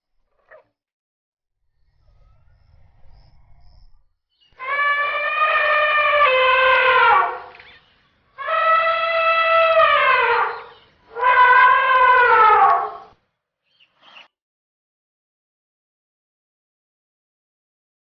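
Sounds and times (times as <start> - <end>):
elephants trumpeting: 4.6 - 7.5, 8.4 - 13.1.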